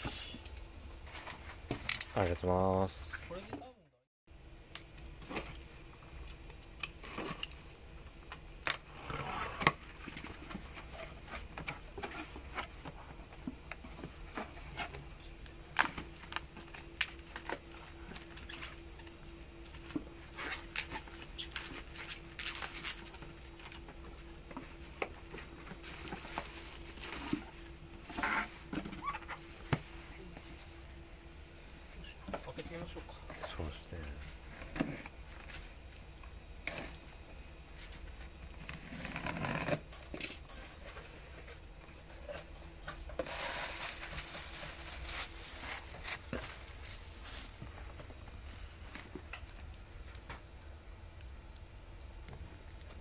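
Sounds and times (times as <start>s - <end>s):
packaging rustling: 43.2s - 49.0s.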